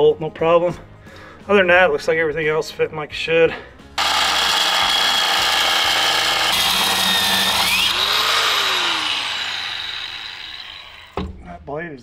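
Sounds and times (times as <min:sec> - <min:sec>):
angle grinder cutting metal: 0:04.0 - 0:11.2
grinder winding down whine: 0:04.0 - 0:11.2.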